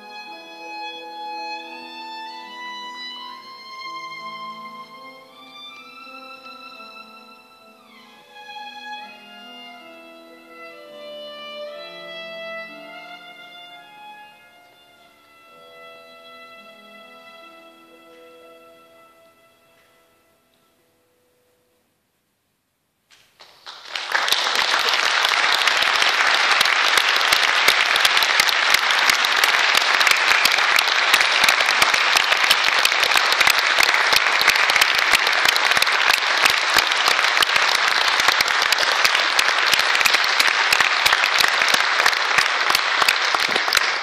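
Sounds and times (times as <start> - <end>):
audience applauding: 23.1 - 44.0.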